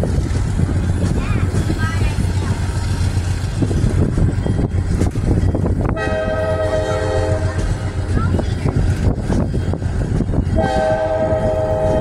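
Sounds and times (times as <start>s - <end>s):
train rumbling along: 0.0s - 12.0s
locomotive air horn: 5.9s - 7.6s, 10.6s - 12.0s.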